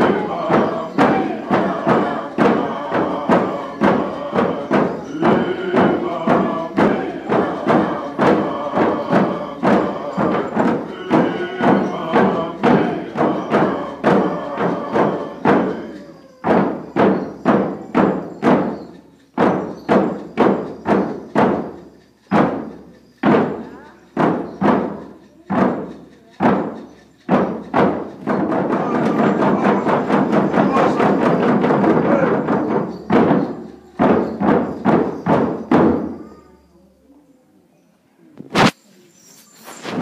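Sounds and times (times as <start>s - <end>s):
group singing: 0.0s - 18.7s, 26.4s - 36.4s
hand drums beating: 0.0s - 36.5s.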